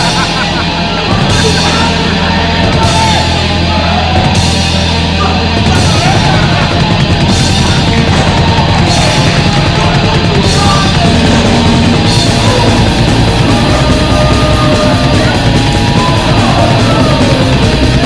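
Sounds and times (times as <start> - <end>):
heavy metal music: 0.0 - 18.0.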